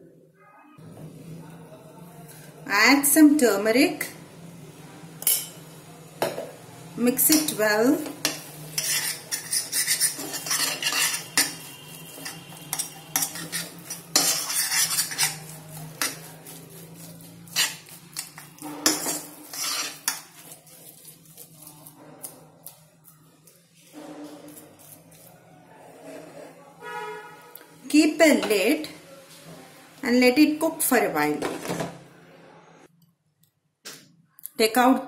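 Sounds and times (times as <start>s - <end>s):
metal spoon scraping steel pan: 8.2s - 22.0s.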